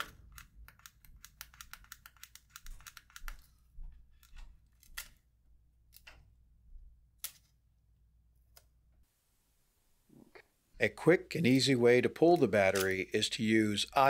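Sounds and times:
tweezers clicking on plastic: 0.0s - 6.3s.

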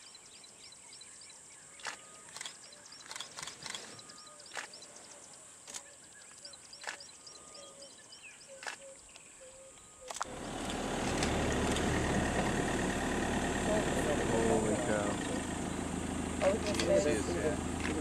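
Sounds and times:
birds chirping: 0.0s - 18.0s
sharp clicks: 1.8s - 4.8s
vehicle engine humming: 10.2s - 18.0s.

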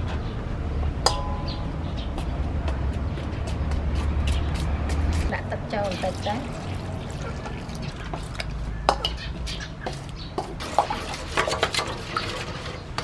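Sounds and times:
utensils clinking and scraping: 6.0s - 13.0s.

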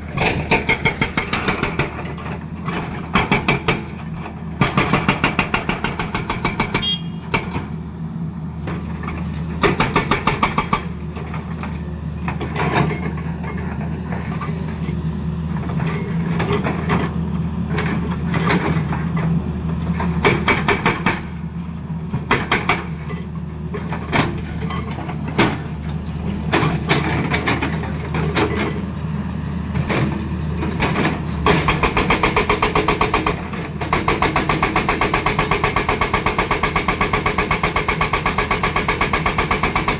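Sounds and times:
excavator diesel engine running: 0.0s - 39.9s
hydraulic breaker hammering rock: 0.1s - 4.0s, 4.6s - 7.7s, 9.6s - 11.4s, 19.9s - 21.4s, 22.1s - 23.2s, 29.8s - 39.9s.

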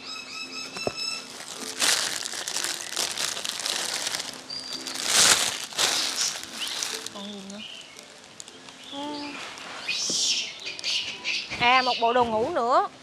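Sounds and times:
quiet background music: 0.0s - 13.0s
packaging crinkling: 1.1s - 8.6s.

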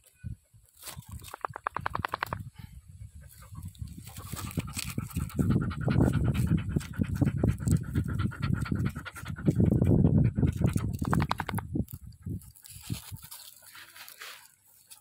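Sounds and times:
dog panting: 3.1s - 11.6s.

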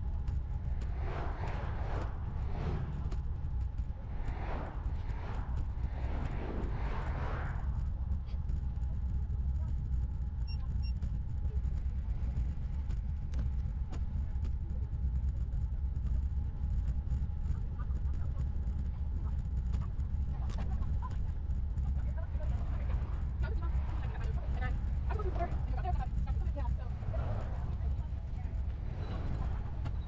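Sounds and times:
wind and road noise rumble: 0.0s - 30.0s
short electronic beeps: 10.5s - 11.0s.

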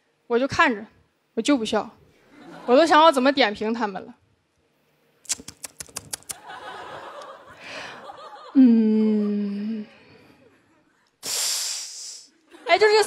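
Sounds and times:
audience laughing: 2.3s - 3.4s, 6.2s - 11.1s, 12.4s - 13.0s
sharp clicks: 5.2s - 6.4s
woman humming: 8.6s - 10.0s.

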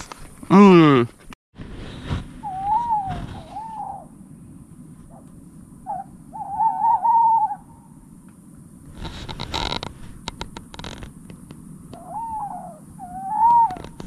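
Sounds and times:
rustling noise: 1.1s - 3.8s, 8.8s - 11.6s
owl hooting: 2.4s - 4.4s, 5.1s - 8.0s, 11.9s - 14.0s.

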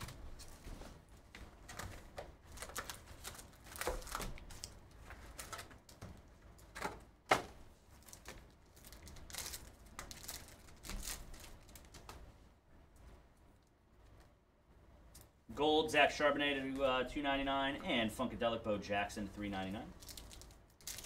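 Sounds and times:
foil card packs rustling: 0.0s - 12.2s, 19.5s - 21.0s
foil pack tearing: 1.8s - 5.8s, 8.0s - 12.1s, 20.0s - 21.0s.

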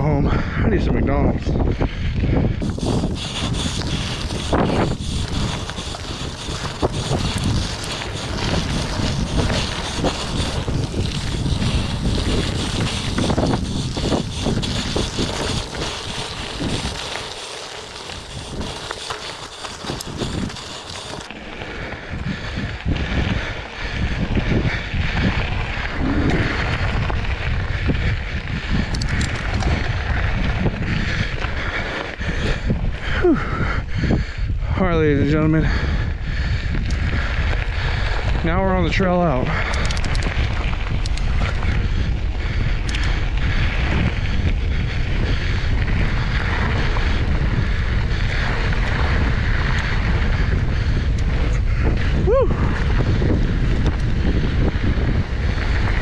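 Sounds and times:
wind buffeting microphone: 0.0s - 56.0s
bike tyres crunching on dirt: 1.3s - 56.0s
low rumble: 19.9s - 34.0s.

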